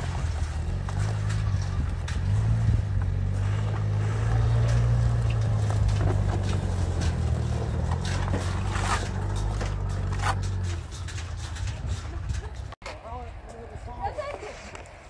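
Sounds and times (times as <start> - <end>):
engine idling: 0.0 - 12.8.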